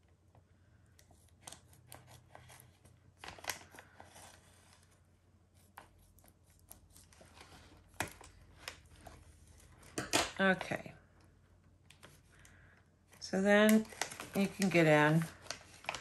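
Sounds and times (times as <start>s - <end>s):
plastic crinkling: 11.9s - 16.0s
scissors snipping plastic bag: 13.5s - 16.0s.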